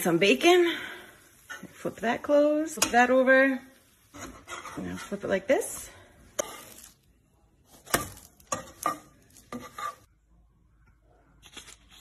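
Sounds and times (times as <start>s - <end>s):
spatula knocking and scraping pan: 1.4s - 6.9s, 7.7s - 10.1s.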